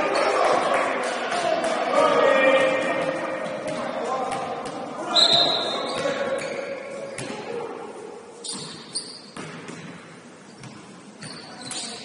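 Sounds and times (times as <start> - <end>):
basketball bouncing on court: 2.6 - 7.4, 8.5 - 12.0
short high squeaks: 8.4 - 9.4, 11.2 - 12.0.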